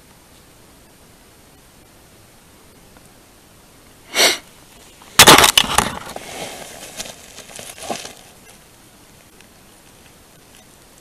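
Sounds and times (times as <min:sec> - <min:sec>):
dry twigs crunching and snapping: 0:05.2 - 0:08.3.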